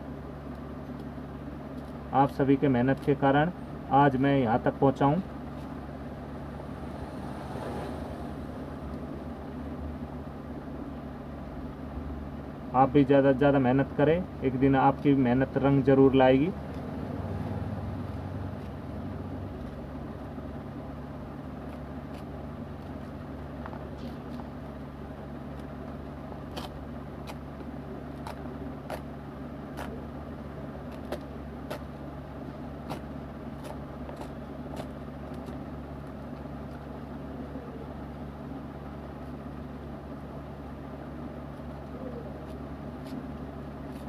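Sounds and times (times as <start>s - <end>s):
low background rumble and hum: 0.0s - 44.0s
paper strip tearing: 26.5s - 27.4s.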